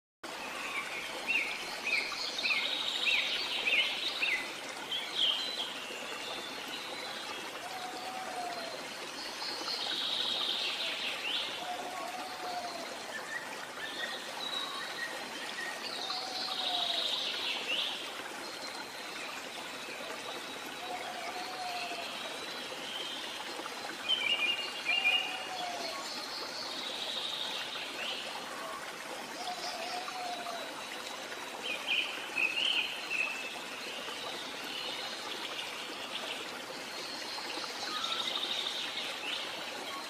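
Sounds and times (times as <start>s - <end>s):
trickling stream: 0.2s - 40.0s.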